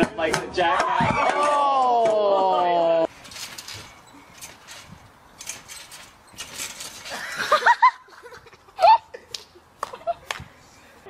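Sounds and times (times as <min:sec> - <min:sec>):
person laughing squeals: 0:08.7 - 0:09.2.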